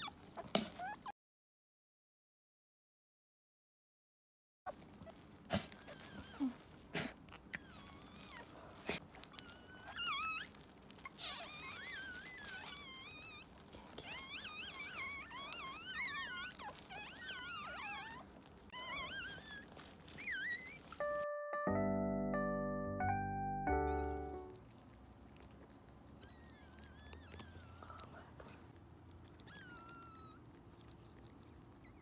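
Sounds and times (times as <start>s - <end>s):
puppy crying high squeaks: 0.0s - 1.1s, 4.7s - 6.6s, 7.5s - 8.6s, 9.2s - 21.3s, 23.7s - 24.6s, 26.2s - 28.1s, 29.4s - 30.5s, 31.8s - 32.0s.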